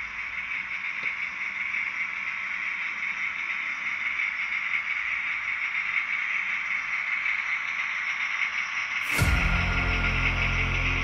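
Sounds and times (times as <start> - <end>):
model train wheels on rails: 0.0 - 11.0.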